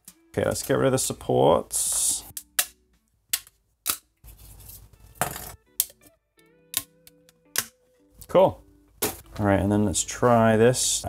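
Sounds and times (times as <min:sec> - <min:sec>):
plastic snapping: 0:02.3 - 0:04.1, 0:06.7 - 0:07.8.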